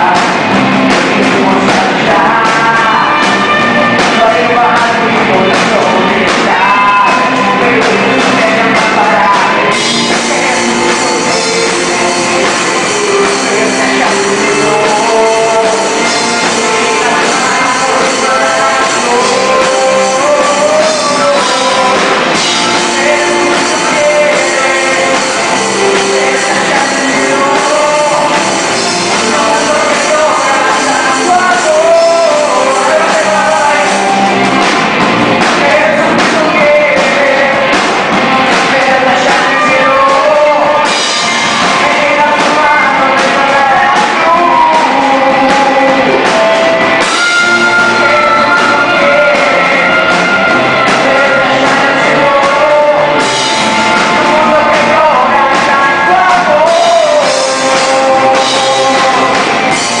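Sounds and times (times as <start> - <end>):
live rock music: 0.0 - 60.0
person singing: 0.0 - 60.0.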